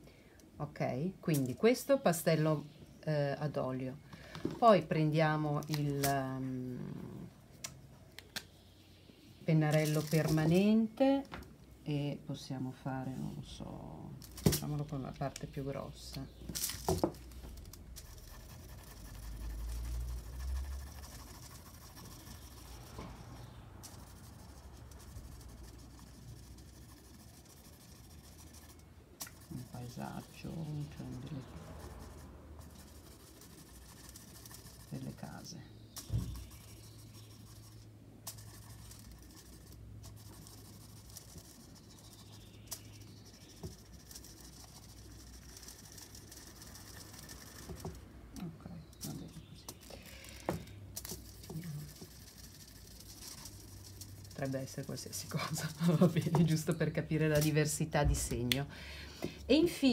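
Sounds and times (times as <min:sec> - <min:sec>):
marker rubbing over foil: 0:09.6 - 0:10.8, 0:14.2 - 0:48.1, 0:48.9 - 0:58.5.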